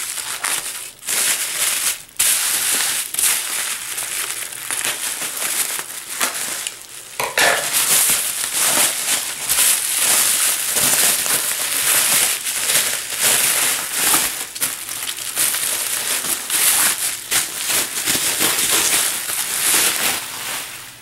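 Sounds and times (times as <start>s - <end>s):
bubble wrap crinkling: 0.0s - 21.0s.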